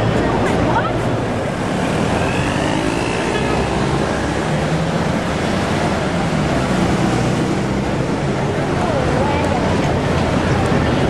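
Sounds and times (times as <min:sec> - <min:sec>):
buses and cars driving past: 0:00.0 - 0:11.0.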